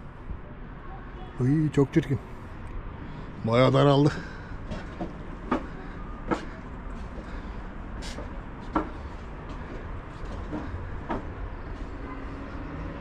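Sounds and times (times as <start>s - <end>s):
footsteps on stone steps: 4.2s - 11.9s.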